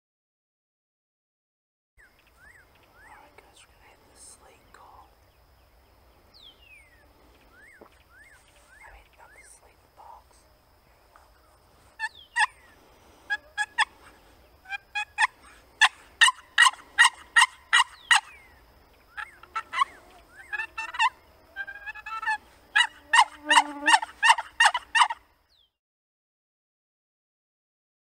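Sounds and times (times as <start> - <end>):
turkey call raspy yelps: 12.0 - 18.5, 19.1 - 25.2.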